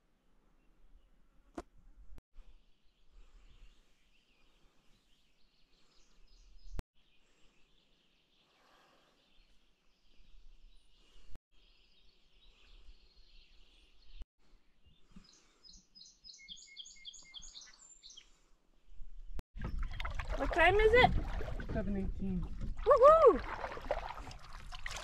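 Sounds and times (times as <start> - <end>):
songbirds chirping: 2.4 - 19.8
bird singing repeated short notes: 15.2 - 18.3.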